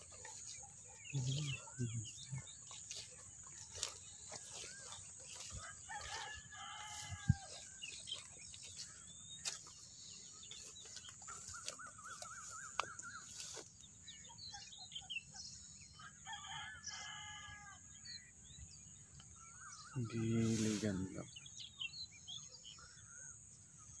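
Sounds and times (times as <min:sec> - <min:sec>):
birdsong: 0:00.0 - 0:24.0
rooster crowing: 0:04.4 - 0:07.8, 0:16.0 - 0:17.8.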